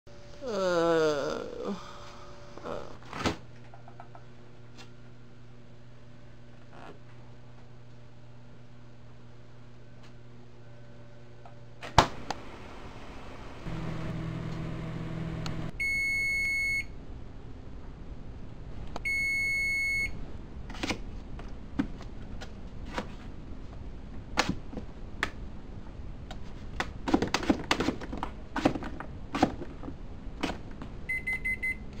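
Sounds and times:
kitchen appliance humming: 0:12.1 - 0:15.8.

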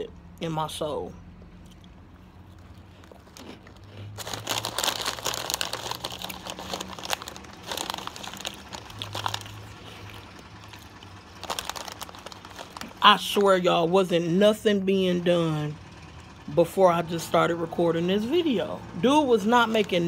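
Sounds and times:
crunchy snack being chewed: 0:01.4 - 0:13.0.

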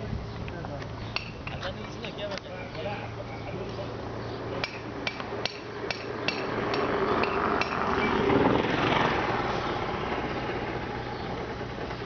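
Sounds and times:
vehicle passing: 0:01.6 - 0:12.0
sharp metallic knocks: 0:04.6 - 0:08.2.

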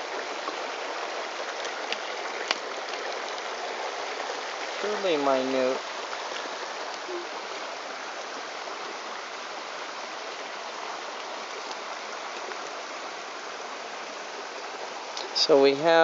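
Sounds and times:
stream water running: 0:00.0 - 0:16.0.

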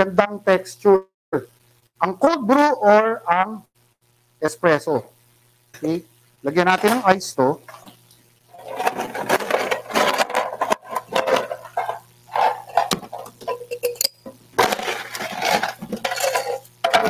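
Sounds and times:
coffee equipment clattering: 0:06.7 - 0:07.1, 0:07.7 - 0:17.0.

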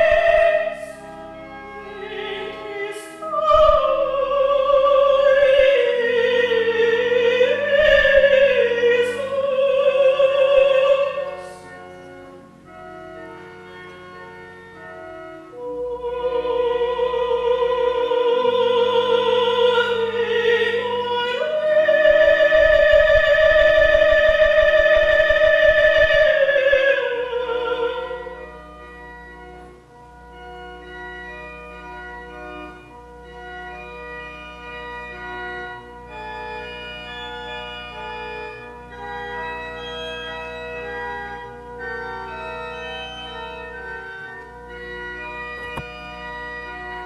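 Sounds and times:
woman singing with vibrato: 0:00.0 - 0:01.0, 0:01.8 - 0:11.6, 0:15.5 - 0:28.4
organ sustained chords: 0:00.0 - 0:47.0.

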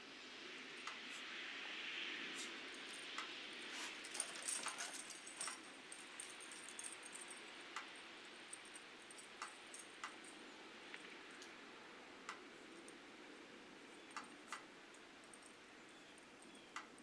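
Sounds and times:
faint steady hiss: 0:00.0 - 0:17.0
small dogs playing: 0:02.3 - 0:07.4
light jingling clicks: 0:02.4 - 0:11.6, 0:12.3 - 0:17.0.

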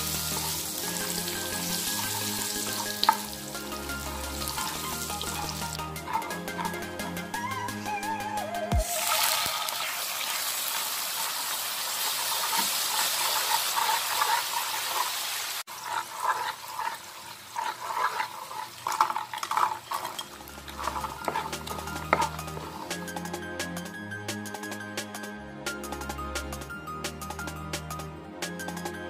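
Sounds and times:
sugar syrup bubbling and sizzling: 0:00.0 - 0:07.3, 0:08.8 - 0:23.2
wooden spatula scraping pan: 0:04.4 - 0:07.3, 0:12.0 - 0:23.1.

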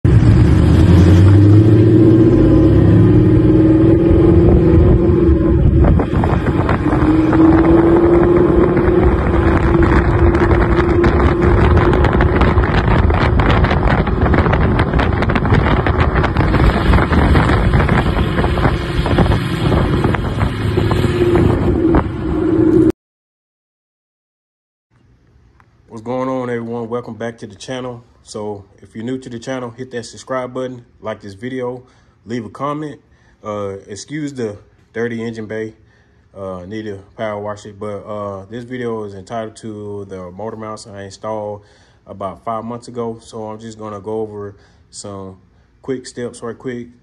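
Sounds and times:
car engine exhaust accelerating: 0:00.0 - 0:22.9.

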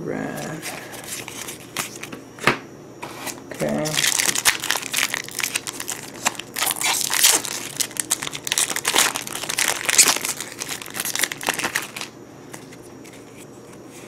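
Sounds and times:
foil wrapper crinkling and tearing: 0:03.7 - 0:13.4.

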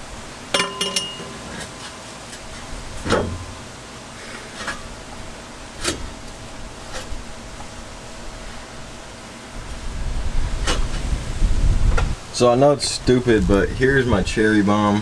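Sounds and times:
short metallic ring: 0:00.5 - 0:01.4
metal clinks and knocks: 0:00.5 - 0:01.7.

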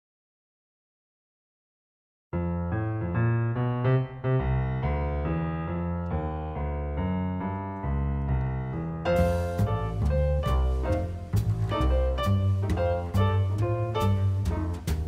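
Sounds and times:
piano keyboard melody with chords: 0:02.4 - 0:15.0
low bass line: 0:06.2 - 0:15.0.

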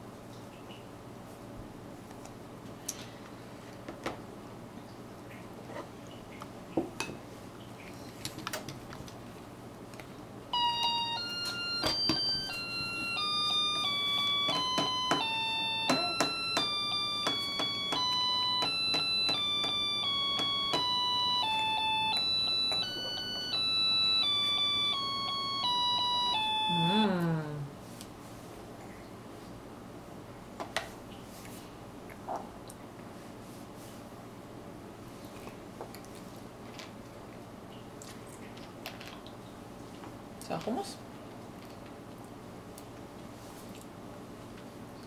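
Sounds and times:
chime-like electronic melody: 0:10.6 - 0:27.0.

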